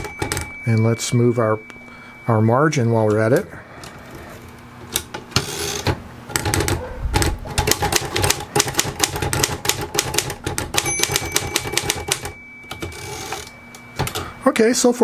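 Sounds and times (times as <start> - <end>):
typewriter margin bell ringing: 0.0 - 2.4, 10.8 - 14.4
typewriter keys clacking: 6.4 - 14.2.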